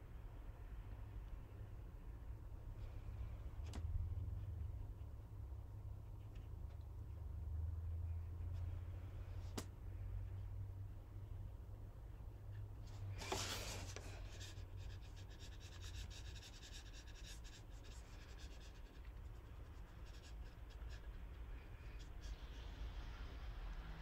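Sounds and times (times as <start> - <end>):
brush strokes on paper: 12.5 - 23.2
paper rustle: 12.9 - 14.4.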